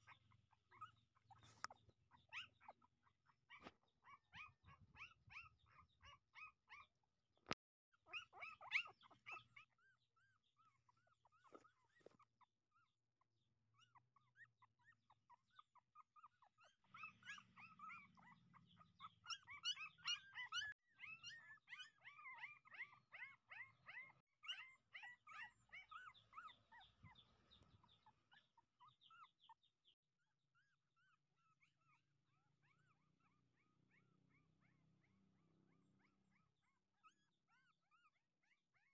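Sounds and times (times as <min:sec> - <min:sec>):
puppies whimpering: 0:00.0 - 0:02.9, 0:03.5 - 0:07.0, 0:08.1 - 0:12.3, 0:13.8 - 0:29.6.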